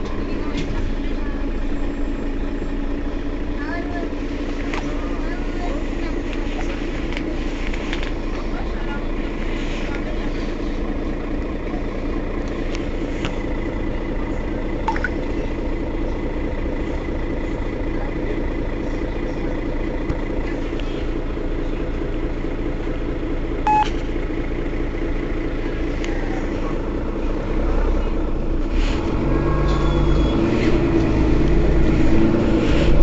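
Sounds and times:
city bus idling: 0:00.0 - 0:33.0
short electronic beep: 0:23.7 - 0:24.0.

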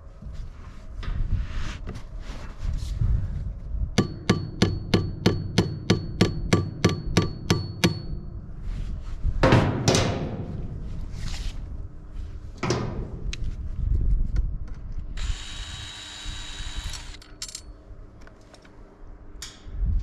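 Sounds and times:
hammer tapping metal hatch: 0:04.0 - 0:08.3.

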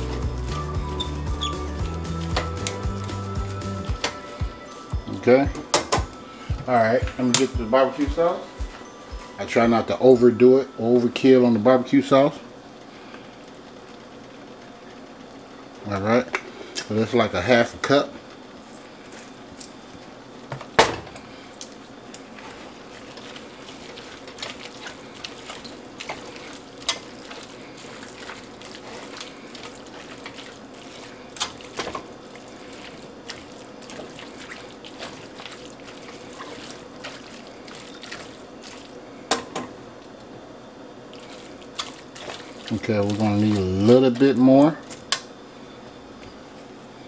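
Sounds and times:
steady low hiss: 0:00.0 - 0:13.0
spatula stirring wet food: 0:21.7 - 0:39.6, 0:41.1 - 0:45.2.

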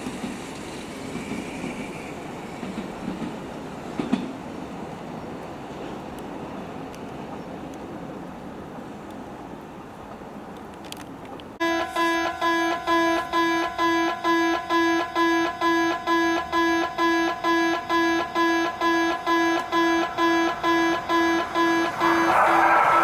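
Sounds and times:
train passing: 0:00.0 - 0:10.7, 0:11.6 - 0:23.0
level crossing bell dinging: 0:11.6 - 0:22.4.

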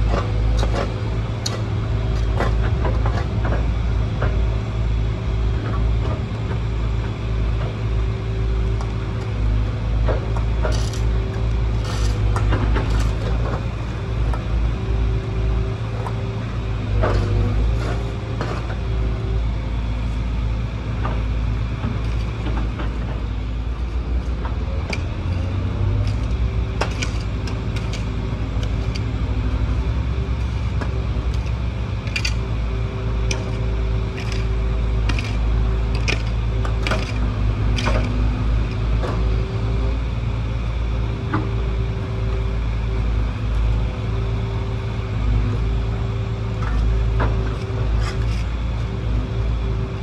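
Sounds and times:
diesel engine rumble: 0:00.0 - 0:50.0
metallic clanks and knocks: 0:30.3 - 0:32.6, 0:33.2 - 0:38.2.

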